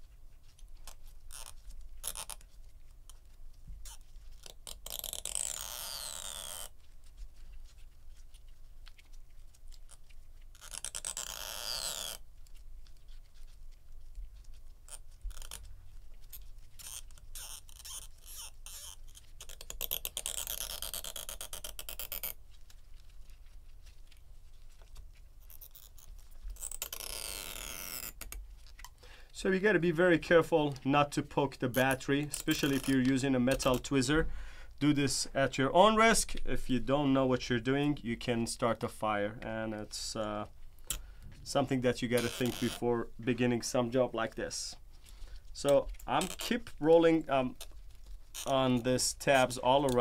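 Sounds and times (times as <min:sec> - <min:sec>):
adhesive tab peeling: 0:00.5 - 0:07.9, 0:08.8 - 0:13.6, 0:14.4 - 0:29.0, 0:31.7 - 0:34.0, 0:40.7 - 0:42.8, 0:45.8 - 0:46.8.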